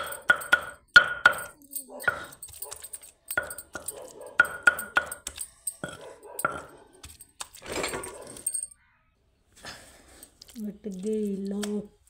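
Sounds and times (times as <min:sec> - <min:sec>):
grinding stone knocking: 0:00.0 - 0:08.5.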